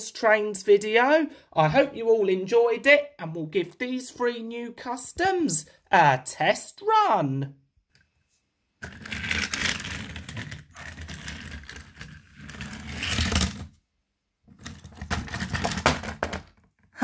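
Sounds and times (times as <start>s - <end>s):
toy train wheels rolling on plastic track: 8.8s - 13.7s.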